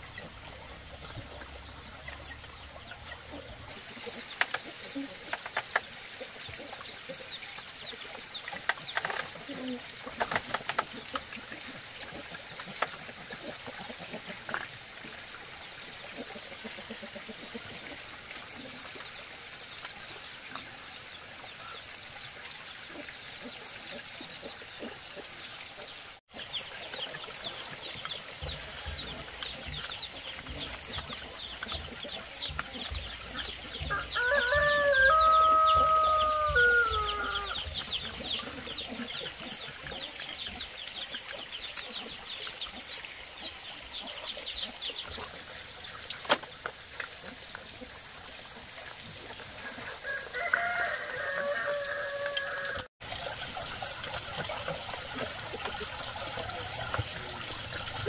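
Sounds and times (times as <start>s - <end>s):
rooster crowing: 33.9s - 37.6s, 50.0s - 52.9s.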